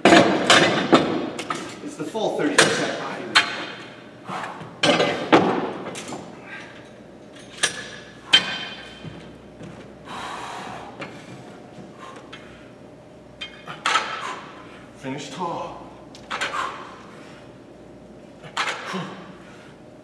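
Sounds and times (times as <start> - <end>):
metal dumbbell clanks: 7.4 - 9.1.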